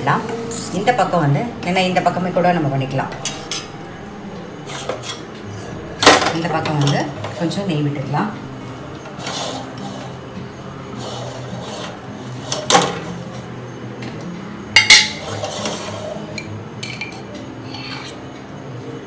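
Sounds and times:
low hum: 0.0 - 14.8.

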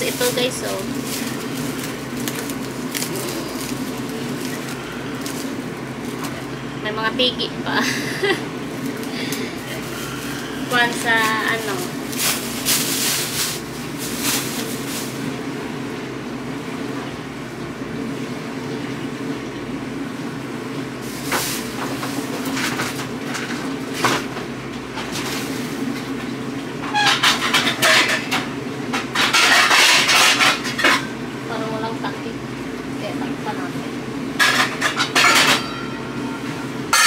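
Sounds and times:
rustling and clatter of handling: 0.0 - 6.6, 8.7 - 15.3, 21.0 - 26.2, 26.9 - 31.1
low mechanical hum: 0.0 - 37.0.

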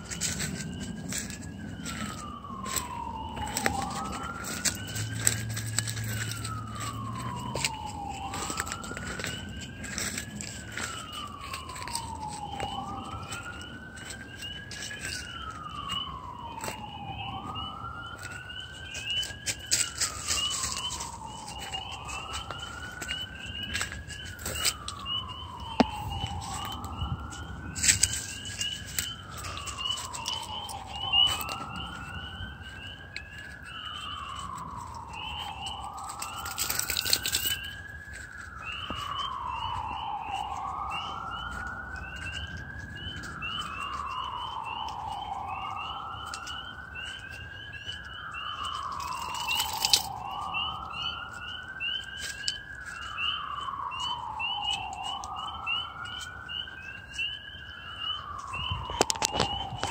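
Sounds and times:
rustling: 0.0 - 16.8
distant siren wailing: 0.0 - 59.9
frogs peeping: 38.6 - 59.9.

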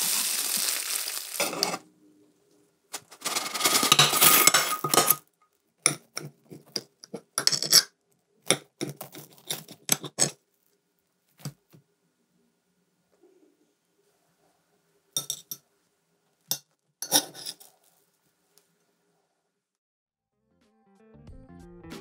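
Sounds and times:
scraping and rustling: 0.1 - 1.9, 2.9 - 5.3, 8.8 - 11.7
knife cutting on plate: 5.9 - 7.9, 8.5 - 10.4.

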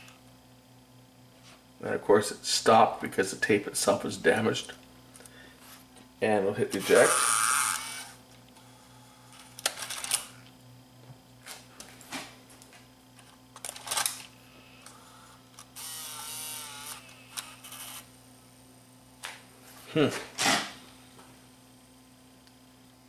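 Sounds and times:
cassette mechanism motor whirring: 6.7 - 11.6, 13.1 - 18.2.

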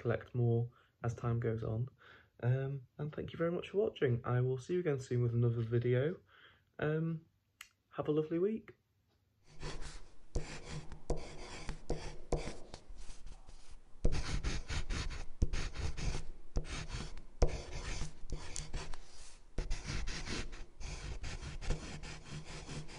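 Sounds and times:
marker writing on paper: 9.5 - 22.9.

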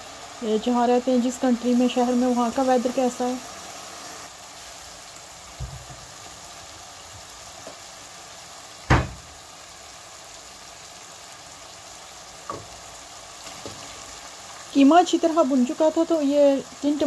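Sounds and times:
mince sizzling in a pot: 0.0 - 17.0
sharp knocks: 8.9 - 9.2.

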